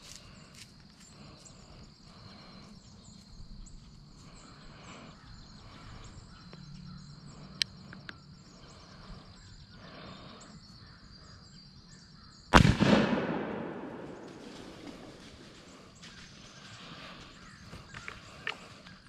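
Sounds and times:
rifle shot echoing: 0:12.5 - 0:15.6.

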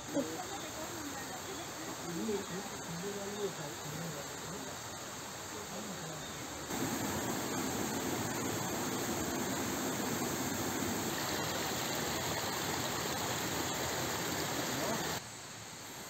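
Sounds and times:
stream running over stones: 0:00.0 - 0:16.0
faint voices: 0:14.2 - 0:15.2.

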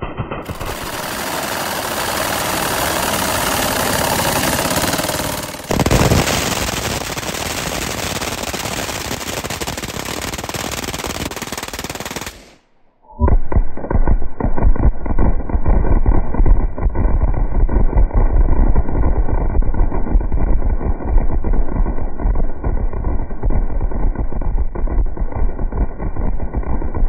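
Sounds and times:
machine guns firing: 0:00.0 - 0:12.6, 0:13.4 - 0:27.0.

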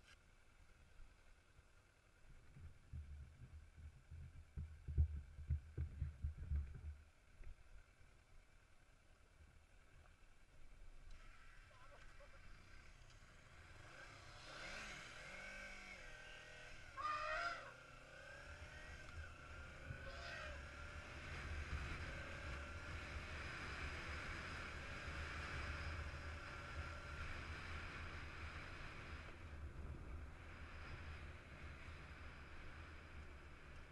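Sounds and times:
motorcycle engine accelerating: 0:09.5 - 0:33.9.

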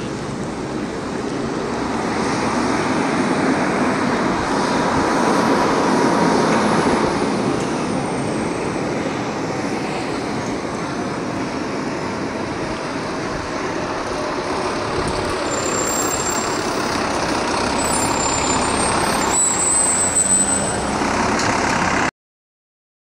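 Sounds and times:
truck diesel engine driving past: 0:11.0 - 0:22.1.

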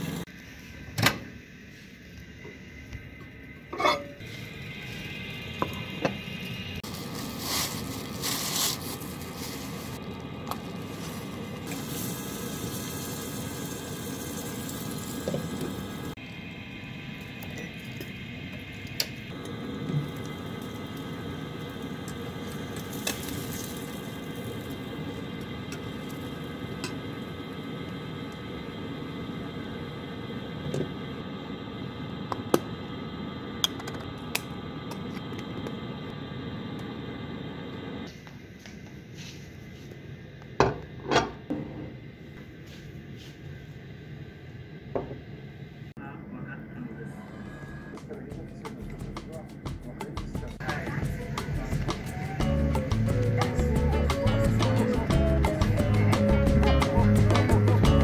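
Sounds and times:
kitchen hum and hiss: 0:00.0 - 0:58.0.

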